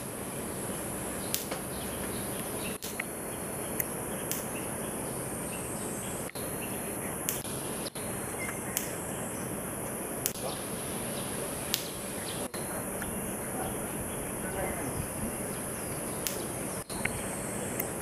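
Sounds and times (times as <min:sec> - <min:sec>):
sharp ticks: 0:00.0 - 0:04.7, 0:05.8 - 0:09.1, 0:10.2 - 0:10.6, 0:11.6 - 0:13.1, 0:16.1 - 0:18.0
high-pitched insect drone: 0:00.0 - 0:18.0.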